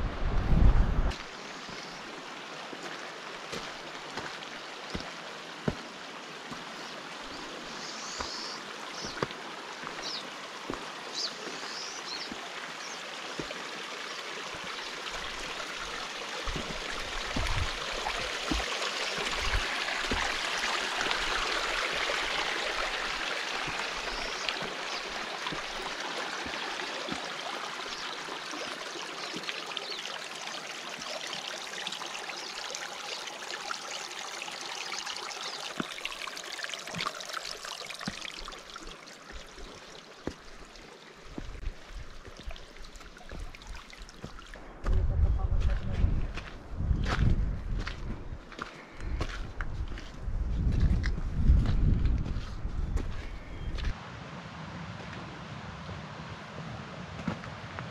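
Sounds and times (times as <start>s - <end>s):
mountain stream rushing: 0.0s - 44.8s
footsteps on rocky trail: 2.8s - 5.9s, 6.5s - 6.9s, 8.0s - 12.4s, 14.5s - 20.5s, 23.6s - 27.3s, 38.8s - 40.6s, 41.3s - 42.5s, 44.2s - 54.0s.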